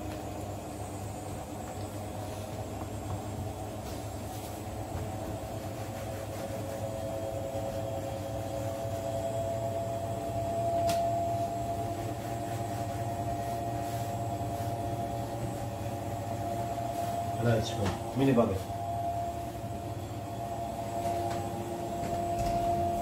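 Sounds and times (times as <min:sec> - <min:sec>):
machine motor humming: 0:14.8 - 0:23.0.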